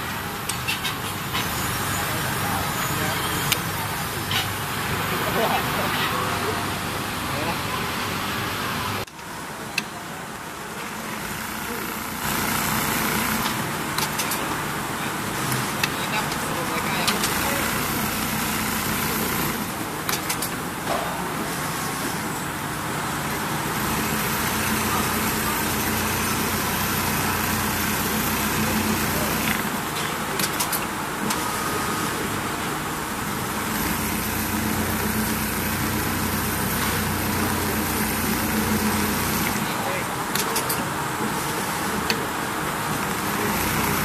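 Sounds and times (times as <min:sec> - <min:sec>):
sewing machine stitching: 0:11.2 - 0:14.5, 0:17.0 - 0:20.5, 0:23.2 - 0:32.0, 0:33.4 - 0:40.8, 0:42.9 - 0:44.0.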